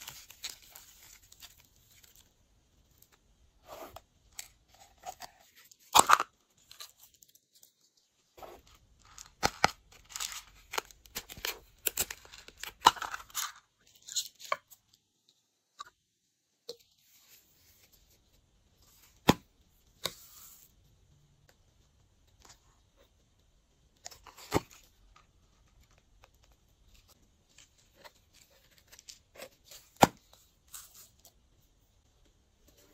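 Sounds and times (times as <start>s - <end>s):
plastic crackling and crinkling: 0.0s - 3.2s.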